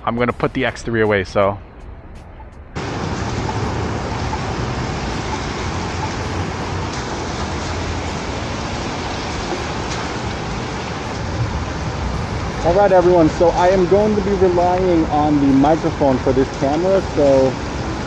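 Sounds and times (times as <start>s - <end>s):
wind buffeting microphone: 2.6s - 16.1s.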